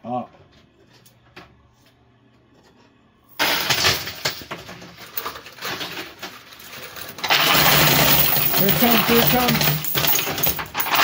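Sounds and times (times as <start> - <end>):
coins clattering in coin pusher: 3.3 - 11.0.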